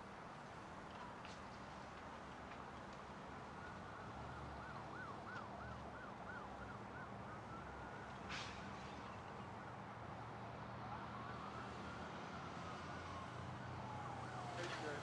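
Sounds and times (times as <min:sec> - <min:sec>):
highway traffic rumble: 0:00.0 - 0:15.0
faint siren wailing and yelping: 0:03.4 - 0:08.2, 0:10.7 - 0:15.0.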